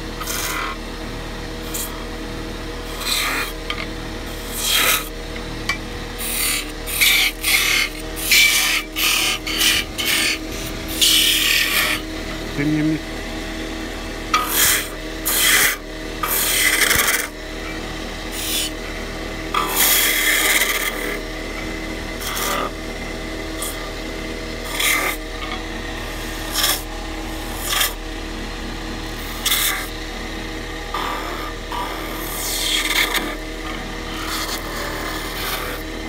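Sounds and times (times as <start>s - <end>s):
chisel scraping spinning wood: 0.0s - 36.0s
wood lathe humming: 0.0s - 36.0s.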